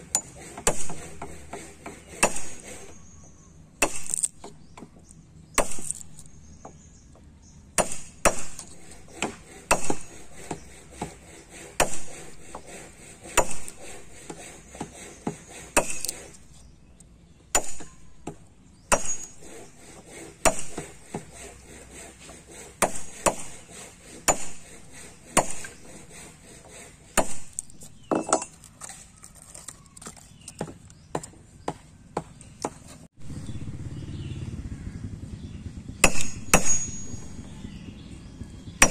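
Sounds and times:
hammer striking steel chisel: 0:00.0 - 0:03.0, 0:07.8 - 0:16.4, 0:17.6 - 0:29.2, 0:36.0 - 0:37.5
wood chips splitting: 0:03.8 - 0:04.9, 0:05.5 - 0:06.4, 0:07.8 - 0:16.6, 0:22.5 - 0:30.9.

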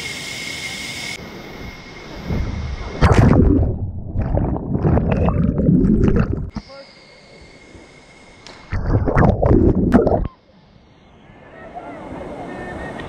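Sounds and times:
loud splash into water: 0:02.9 - 0:06.5
muffled underwater bubbling: 0:03.0 - 0:06.6, 0:08.7 - 0:10.4.

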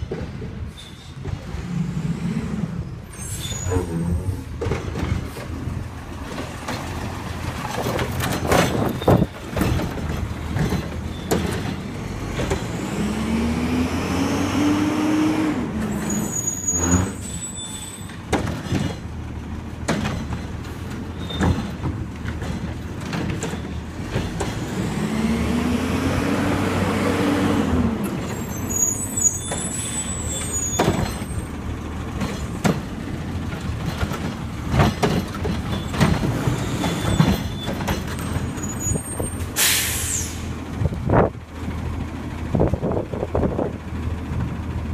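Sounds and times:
clanks of carts and metal: 0:00.0 - 0:01.8, 0:03.1 - 0:12.9, 0:15.8 - 0:25.0, 0:28.1 - 0:41.3
garbage truck engine revving: 0:09.7 - 0:17.3, 0:18.4 - 0:41.0
short hiss of air: 0:39.6 - 0:40.5.

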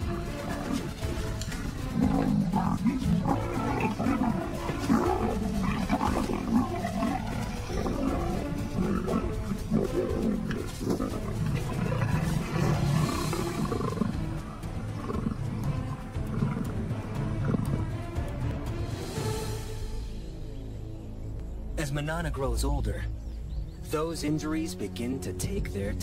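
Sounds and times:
leopards growling and snarling: 0:00.0 - 0:18.4.

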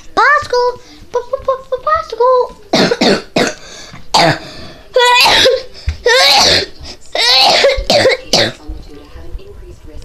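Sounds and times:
child making vocal noises: 0:04.9 - 0:06.6.

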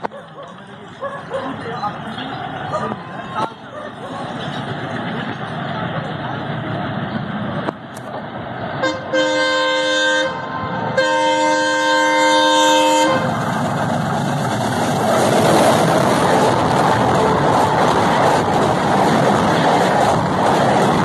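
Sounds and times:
train passing rush and rumble: 0:00.0 - 0:21.0
locomotive horn blasts: 0:08.8 - 0:13.4.

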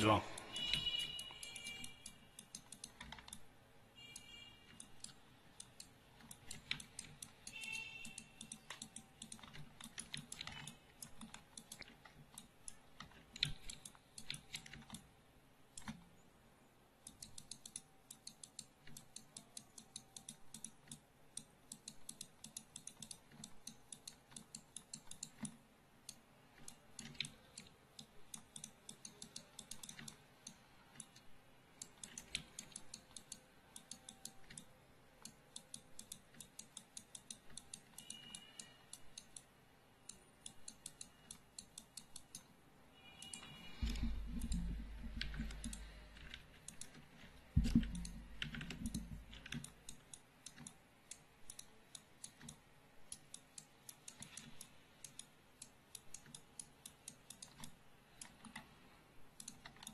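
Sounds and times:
keyboard and mouse clicking: 0:00.0 - 0:15.1, 0:15.7 - 0:16.2, 0:17.0 - 0:42.6, 0:43.2 - 0:59.9.

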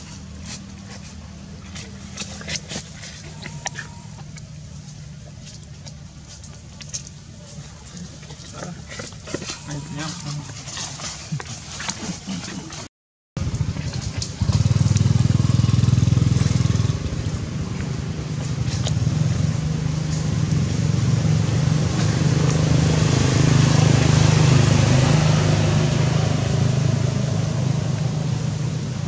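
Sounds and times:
small engine running: 0:13.4 - 0:27.2.

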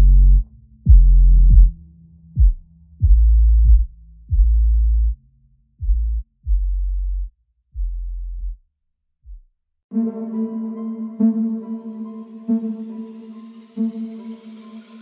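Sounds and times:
deep electronic bass notes: 0:00.0 - 0:08.6.

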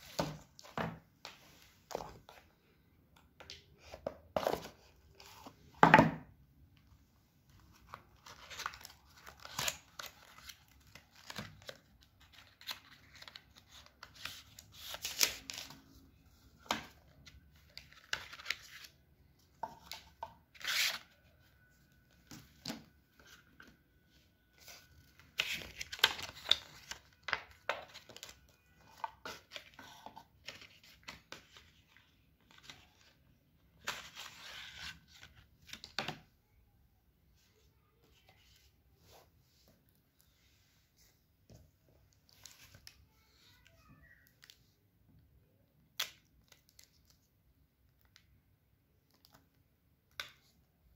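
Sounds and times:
cardboard and paper handling: 0:03.4 - 0:05.8, 0:07.5 - 0:21.5, 0:22.2 - 0:36.2.

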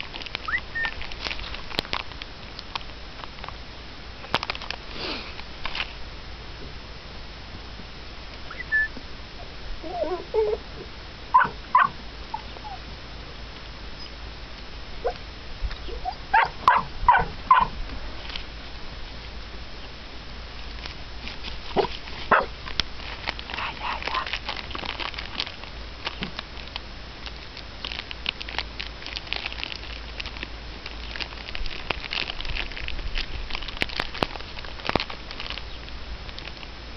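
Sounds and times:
dry crackling and rustling: 0:00.0 - 0:06.8, 0:11.3 - 0:36.9
puppy whimpering and yelping: 0:08.5 - 0:08.9, 0:09.8 - 0:10.6, 0:11.4 - 0:12.8, 0:15.8 - 0:17.7.

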